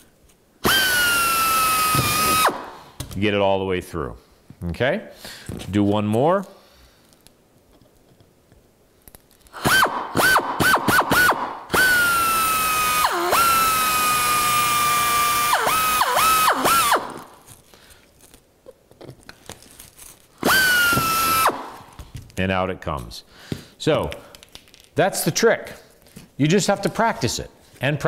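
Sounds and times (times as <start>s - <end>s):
pneumatic air drill whine: 0.6s - 2.9s, 9.6s - 17.4s, 20.4s - 21.9s.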